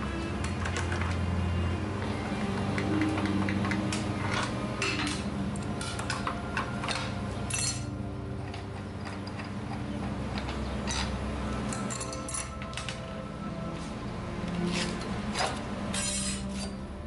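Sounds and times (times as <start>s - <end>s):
wrenches clinking on bolts: 3.4s - 13.0s, 14.8s - 16.8s.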